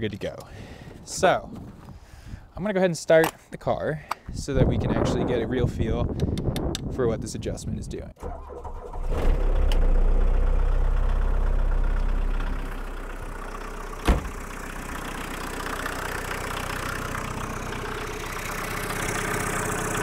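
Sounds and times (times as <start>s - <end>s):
car rattling: 8.2s - 20.0s
diesel engine idling: 8.2s - 20.0s.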